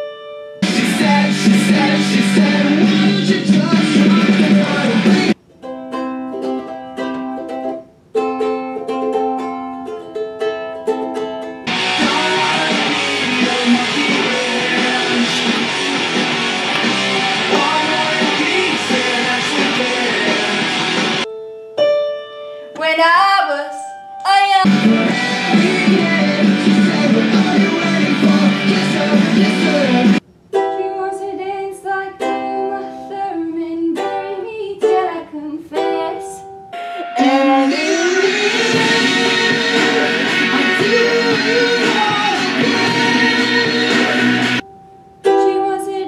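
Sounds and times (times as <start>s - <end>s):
plucked strings: 0.0s - 22.9s, 24.7s - 31.0s, 33.5s - 46.0s
dense full-band music: 0.6s - 5.4s, 11.7s - 21.2s, 24.7s - 30.2s, 37.9s - 44.6s
person singing: 0.6s - 5.4s, 11.7s - 21.2s, 22.8s - 44.6s, 45.2s - 46.0s.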